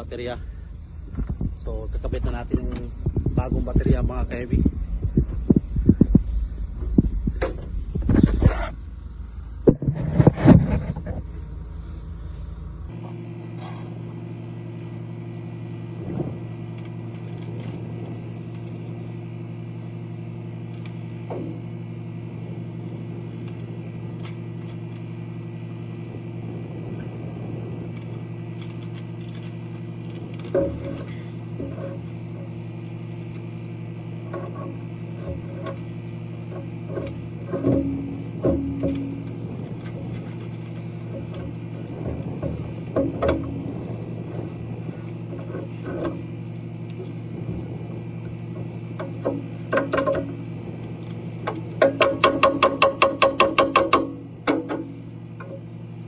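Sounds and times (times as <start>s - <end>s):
low mechanical hum: 0.0s - 56.0s
handling knocks and rustling: 27.9s - 32.6s.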